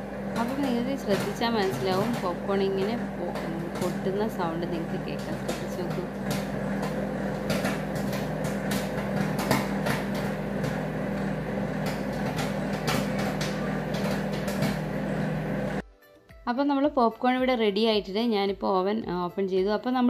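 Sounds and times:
popcorn popping: 0.0s - 15.8s
microwave oven humming: 0.0s - 15.9s.

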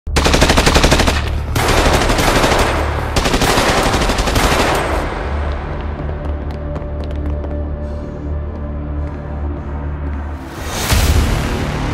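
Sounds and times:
automatic gunfire bursts: 0.1s - 5.1s.

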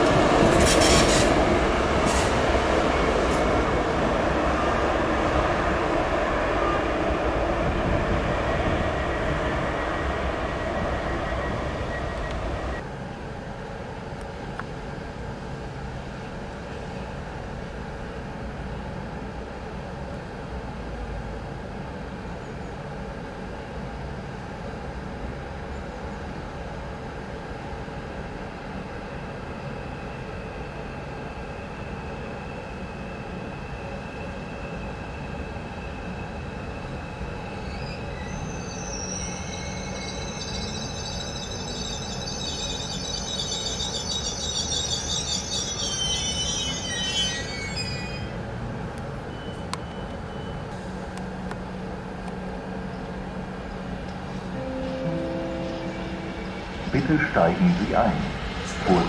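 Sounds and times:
steady train noise: 0.0s - 59.0s
thin high tones: 37.9s - 48.3s, 54.5s - 59.0s.

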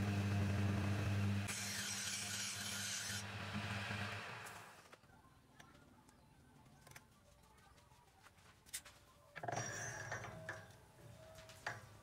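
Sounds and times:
metal-on-metal scraping: 9.4s - 10.7s.

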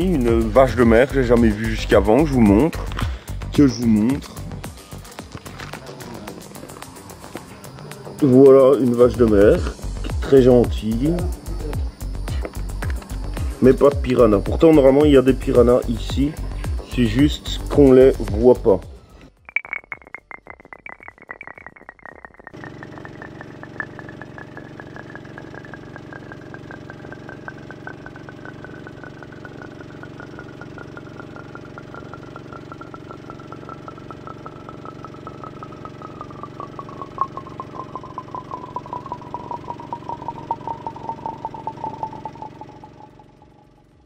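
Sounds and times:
high pulsing whine: 0.0s - 2.8s, 19.5s - 44.0s
boat motor running: 22.4s - 44.0s.

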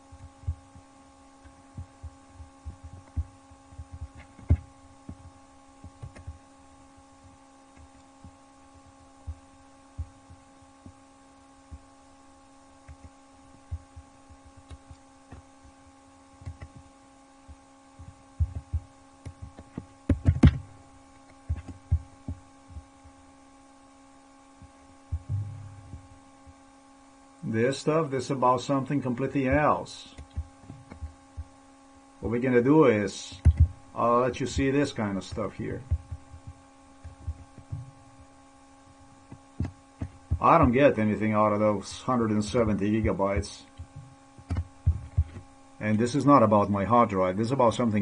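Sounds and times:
electrical hum: 0.0s - 48.0s
low thumps on desk: 1.7s - 6.4s, 17.5s - 20.7s, 25.1s - 26.1s, 33.4s - 33.8s, 43.8s - 45.5s
computer mouse clicking: 6.0s - 6.4s, 16.4s - 16.8s.

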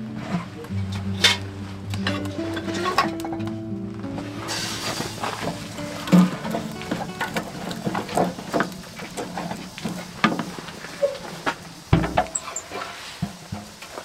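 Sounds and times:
fire crackles: 0.0s - 14.0s
firewood knocking in stove: 5.4s - 10.6s, 11.5s - 12.4s
stove glass door thud: 11.9s - 12.6s.

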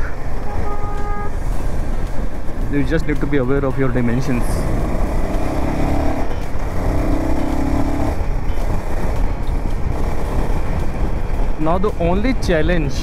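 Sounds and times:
motorcycle engine accelerating: 0.0s - 13.0s
road rumble: 0.0s - 13.0s.

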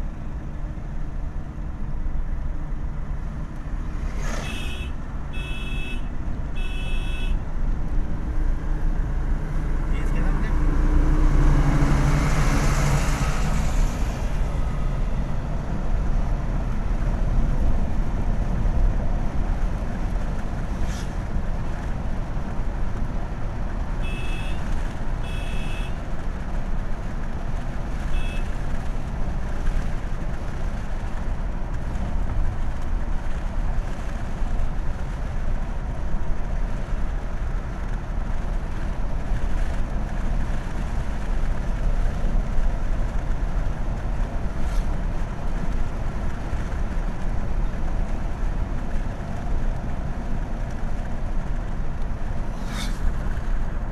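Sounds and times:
car engine and road rumble: 0.0s - 53.9s
truck passing: 2.6s - 5.3s, 7.6s - 17.9s, 51.0s - 53.9s.

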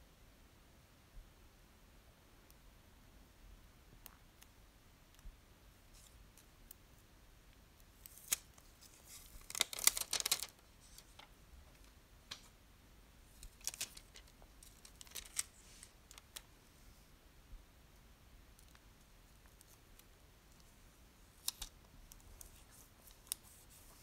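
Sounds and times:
plastic sticker crackling: 8.0s - 11.2s, 13.4s - 16.4s, 21.4s - 23.8s.

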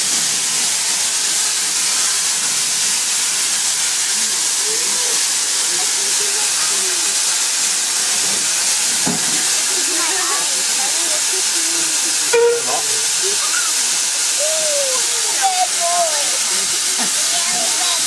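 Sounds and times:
steam hissing from locomotive: 0.0s - 18.0s
faint voices: 4.6s - 7.5s, 9.4s - 18.0s.

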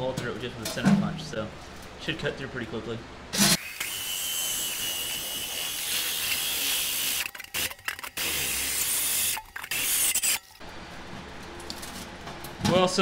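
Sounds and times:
drill hole saw grinding metal: 3.4s - 10.5s.

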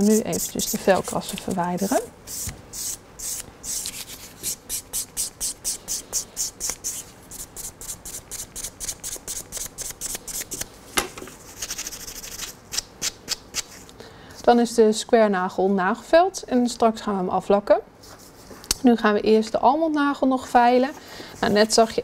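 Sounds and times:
nail file rasping: 0.0s - 1.2s, 1.8s - 10.6s.

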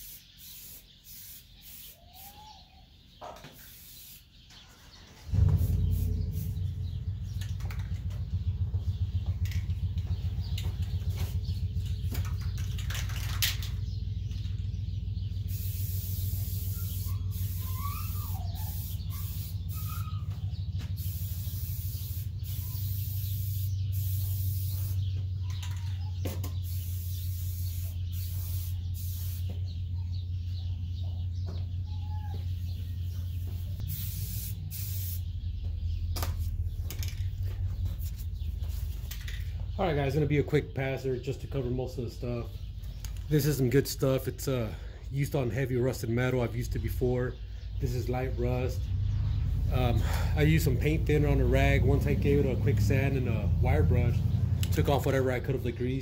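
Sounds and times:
aerosol spray can hissing: 0.0s - 2.4s, 3.6s - 4.3s, 5.3s - 6.6s, 15.5s - 20.1s, 21.0s - 25.0s, 26.6s - 29.5s, 33.8s - 35.3s.

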